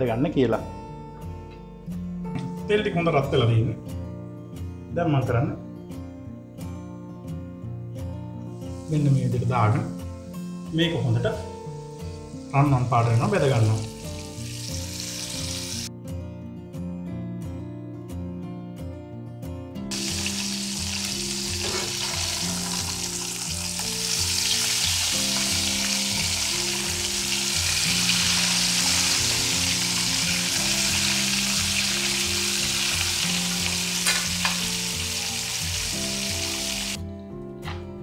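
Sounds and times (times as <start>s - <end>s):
crabs sizzling in hot oil: 8.7s - 10.0s, 11.6s - 15.9s, 19.9s - 37.0s.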